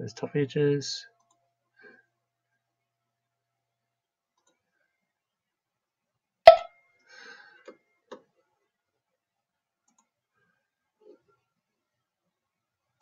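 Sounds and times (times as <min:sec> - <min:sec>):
faint clicks: 0:04.3 - 0:04.6, 0:09.8 - 0:10.2.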